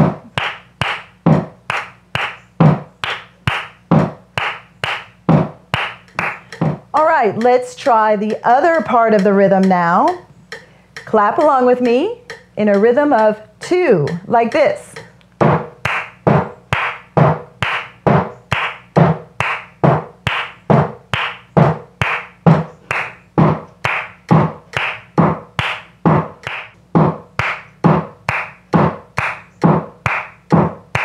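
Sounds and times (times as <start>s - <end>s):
woman clapping hands: 0.0s - 2.4s, 3.0s - 3.8s, 4.4s - 5.1s, 5.7s - 6.5s, 15.8s - 26.8s, 27.4s - 31.0s.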